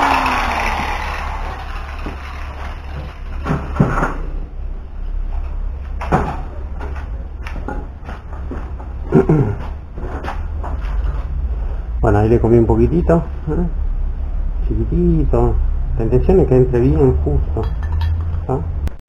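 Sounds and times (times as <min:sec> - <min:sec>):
angle grinder spinning down: 0:00.0 - 0:03.0.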